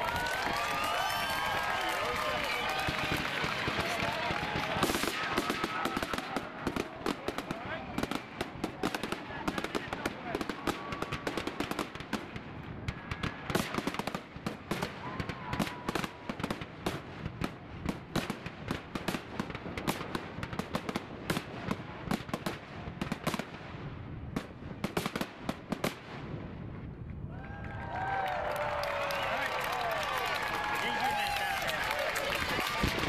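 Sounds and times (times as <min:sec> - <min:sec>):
fireworks bangs and crackles: 0:00.0 - 0:33.0.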